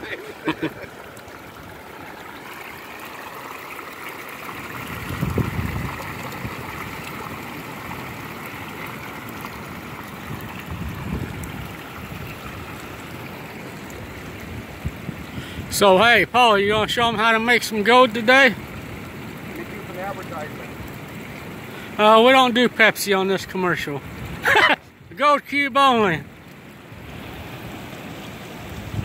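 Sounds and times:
water splashing into bucket: 0:00.0 - 0:15.6
wind rumble on microphone: 0:04.8 - 0:07.0, 0:10.2 - 0:12.8, 0:13.9 - 0:16.0, 0:28.4 - 0:29.0.

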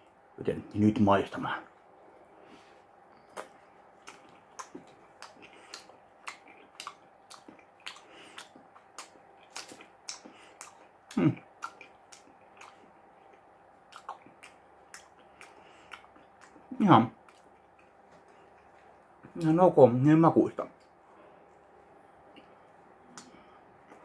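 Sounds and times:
person chewing with mouth smacks: 0:03.2 - 0:19.4, 0:22.3 - 0:24.0
low mouth sound: 0:07.8 - 0:12.8.

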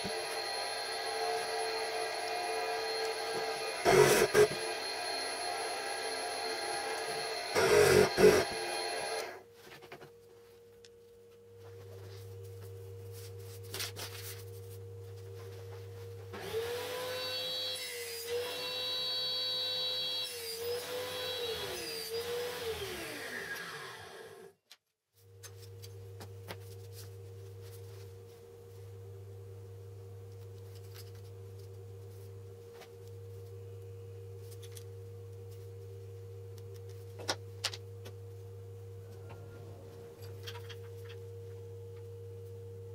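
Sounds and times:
power tool motor whining: 0:00.0 - 0:09.4
low electrical hum: 0:07.6 - 0:16.4, 0:25.1 - 0:42.9.

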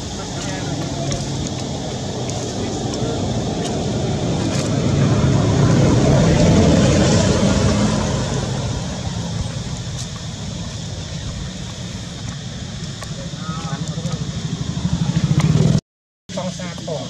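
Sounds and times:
vehicle driving past: 0:00.3 - 0:15.8.

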